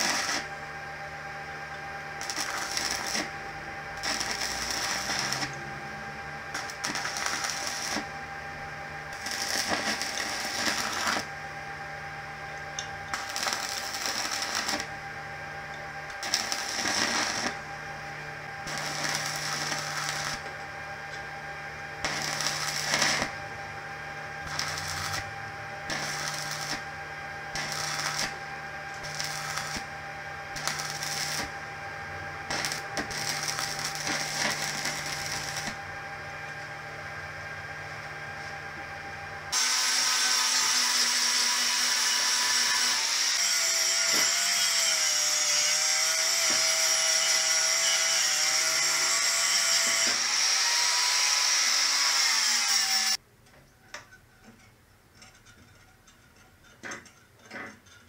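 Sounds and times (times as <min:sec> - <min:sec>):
angle grinder grinding steel: 0:00.0 - 0:00.5, 0:02.2 - 0:03.3, 0:03.9 - 0:05.8, 0:06.5 - 0:08.1, 0:09.1 - 0:11.3, 0:12.8 - 0:14.9, 0:16.1 - 0:17.6, 0:18.6 - 0:20.6, 0:22.0 - 0:23.4, 0:24.4 - 0:26.9, 0:27.5 - 0:29.9, 0:30.6 - 0:31.5, 0:32.4 - 0:35.8, 0:39.5 - 0:53.2
welding arc crackling: 0:00.0 - 0:00.5, 0:02.2 - 0:08.3, 0:09.0 - 0:11.4, 0:12.8 - 0:15.1, 0:16.0 - 0:17.8, 0:18.5 - 0:21.3, 0:22.0 - 0:35.9, 0:39.5 - 0:53.2
steady hum: 0:00.0 - 0:39.8.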